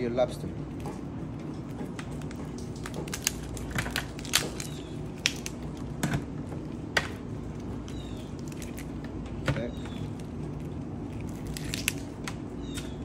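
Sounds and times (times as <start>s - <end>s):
steady low hum: 0.0s - 13.0s
lobster shell cracking: 2.0s - 13.0s.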